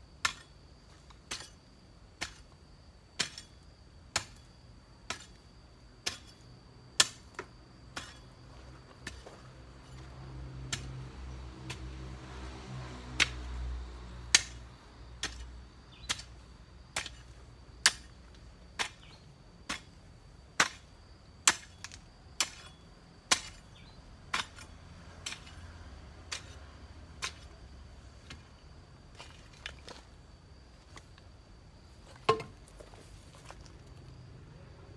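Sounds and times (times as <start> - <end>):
garden hoe chopping soil: 0.2 - 2.6, 3.2 - 5.4, 6.0 - 6.4, 7.0 - 8.4, 9.0 - 12.2, 13.2 - 25.6, 26.2 - 28.4.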